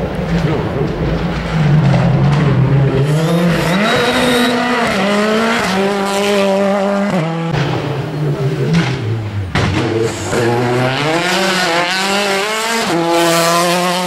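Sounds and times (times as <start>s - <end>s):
car engine at high revs: 0.0s - 14.0s.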